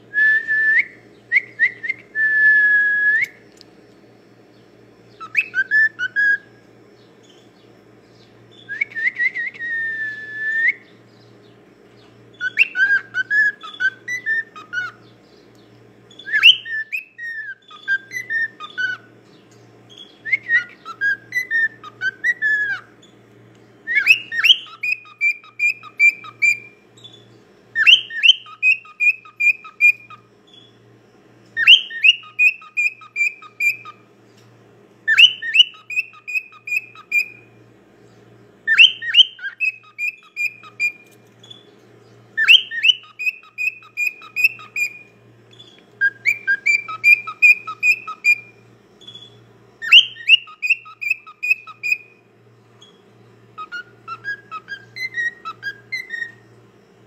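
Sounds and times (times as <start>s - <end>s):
cockatiel whistling: 0.2s - 3.4s, 5.2s - 6.5s, 8.5s - 11.0s, 12.3s - 15.0s, 16.1s - 19.1s, 19.9s - 22.9s, 23.8s - 27.1s, 27.7s - 30.7s, 31.6s - 34.0s, 35.0s - 37.5s, 38.6s - 41.6s, 42.4s - 52.2s, 53.6s - 56.5s.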